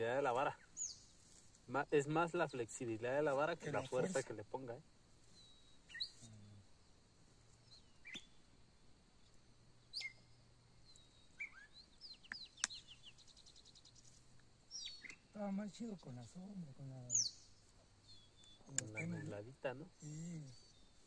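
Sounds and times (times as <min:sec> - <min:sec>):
bird calls: 0:05.2 - 0:06.5, 0:07.6 - 0:08.4, 0:09.8 - 0:15.4, 0:17.1 - 0:19.5
bird trill: 0:05.3 - 0:06.3, 0:07.7 - 0:08.4, 0:09.8 - 0:14.0, 0:14.7 - 0:15.4, 0:17.1 - 0:19.5.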